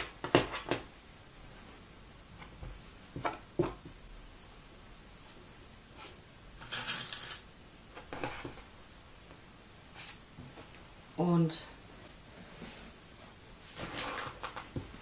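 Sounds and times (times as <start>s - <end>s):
pins clicking and rustling: 6.6s - 7.5s
pins rattling: 6.6s - 7.5s.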